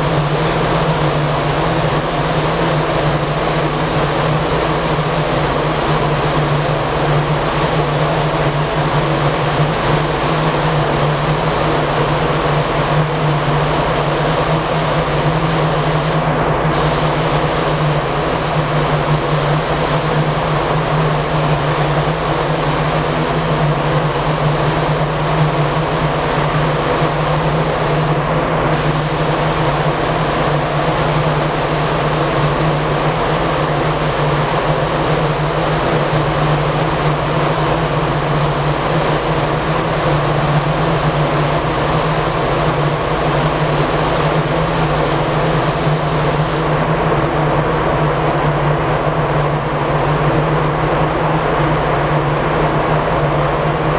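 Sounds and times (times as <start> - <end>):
low machine hum: 0.0 - 53.9
paint spray gun hissing: 10.1 - 16.2, 16.8 - 37.7, 39.8 - 46.6.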